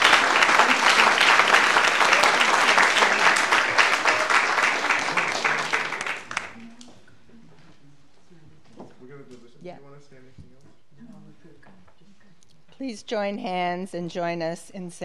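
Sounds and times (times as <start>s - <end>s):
crowd applauding: 0.0s - 6.7s.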